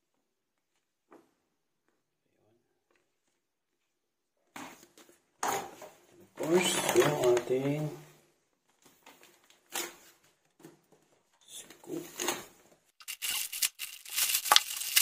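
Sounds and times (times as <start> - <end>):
plastic bag crinkling: 13.0 - 15.0.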